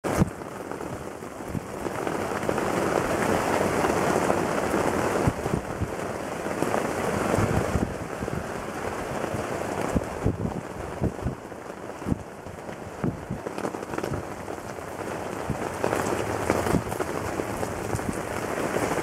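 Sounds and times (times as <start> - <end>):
rain on fabric: 0.0 - 19.0.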